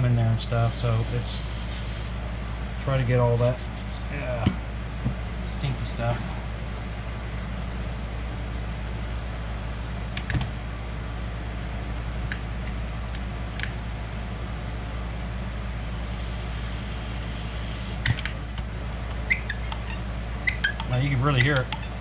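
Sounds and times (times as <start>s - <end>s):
steady low hum: 0.0s - 22.0s
aerosol spray hiss: 0.6s - 2.2s.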